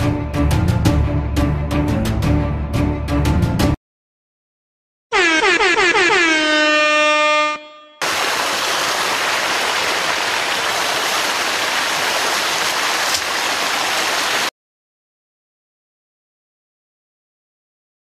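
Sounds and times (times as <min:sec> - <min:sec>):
horn-like tone gliding down: 0:05.1 - 0:08.0.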